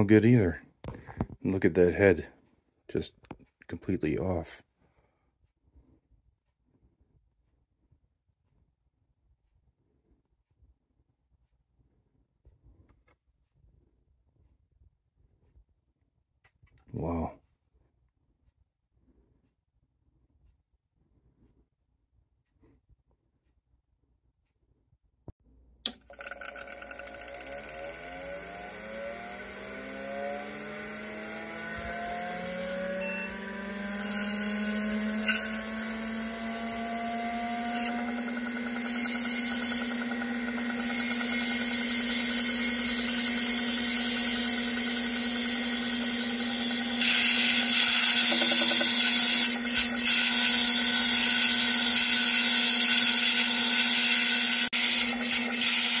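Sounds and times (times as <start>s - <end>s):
hard drive spindle whining: 26.1s - 56.0s.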